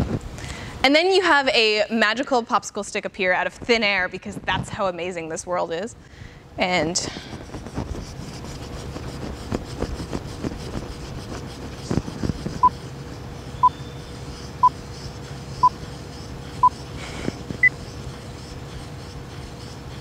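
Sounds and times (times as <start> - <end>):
stick stirring in plastic cup: 7.2 - 12.8.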